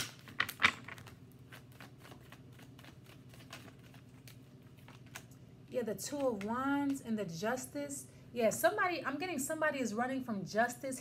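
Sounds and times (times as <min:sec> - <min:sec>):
cards being shuffled: 0:00.0 - 0:05.3.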